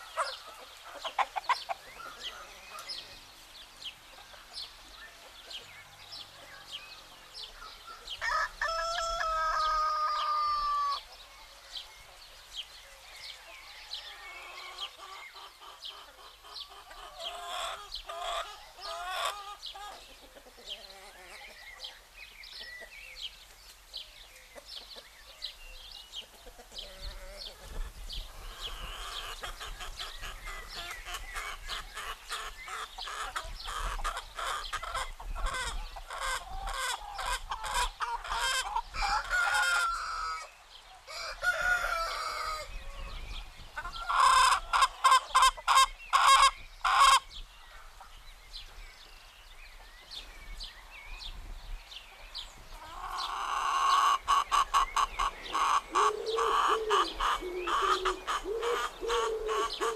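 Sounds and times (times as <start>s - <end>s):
chickens clucking: 0.0s - 48.8s, 52.1s - 59.9s
rooster crowing: 8.2s - 11.0s, 38.9s - 40.5s, 41.1s - 42.7s.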